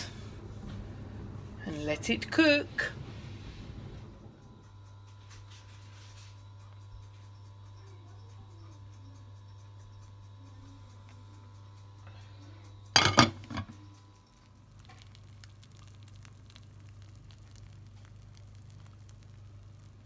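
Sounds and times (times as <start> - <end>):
low steady hum: 0.0 - 20.0
glass lid clinking: 13.0 - 13.8
cake mixture bubbling: 13.0 - 20.0.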